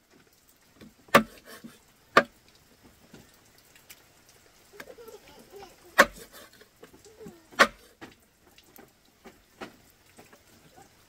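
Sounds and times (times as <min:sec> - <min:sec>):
faint small clicks: 0:02.5 - 0:05.0.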